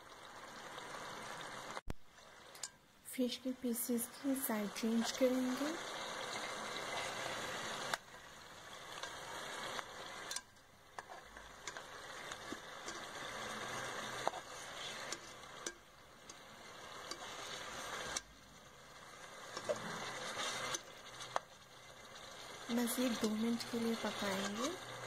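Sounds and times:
curry sizzling and bubbling in pot: 0:00.0 - 0:25.0
metal tongs clicking against pot: 0:02.5 - 0:02.8, 0:10.2 - 0:11.9, 0:12.5 - 0:13.1, 0:15.1 - 0:16.4, 0:23.1 - 0:23.5.

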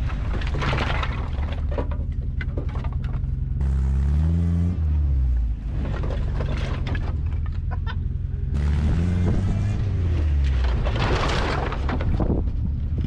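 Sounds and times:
car engine revving: 0:03.5 - 0:07.4, 0:08.0 - 0:11.1
rushing scraping noise: 0:08.5 - 0:12.7.

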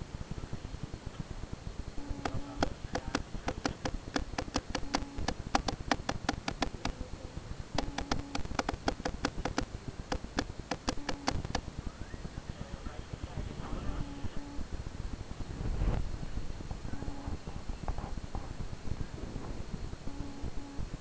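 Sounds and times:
rapid sharp clicks: 0:02.0 - 0:07.0, 0:07.8 - 0:11.7.

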